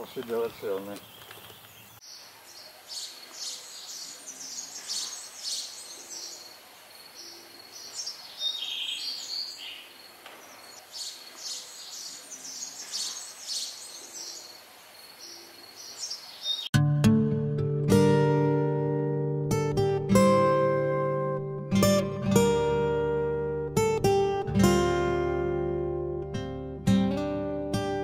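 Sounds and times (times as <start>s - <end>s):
songbirds chirping and trilling: 0.0s - 16.7s.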